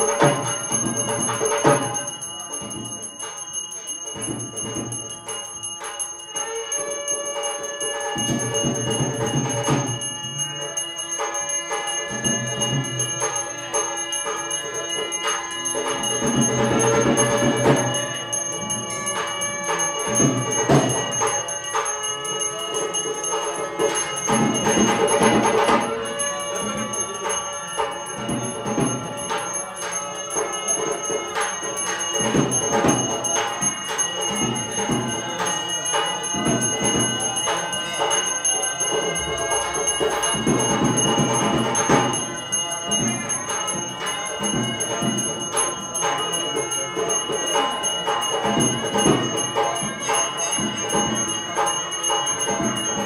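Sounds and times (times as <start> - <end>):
temple bells ringing: 0.0 - 53.0.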